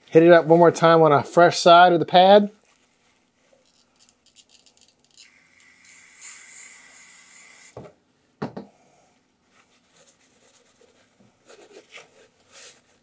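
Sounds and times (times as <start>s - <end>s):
faint rubbing and handling: 2.4s - 4.9s, 9.2s - 13.0s
rough hissing scrape: 5.2s - 7.8s.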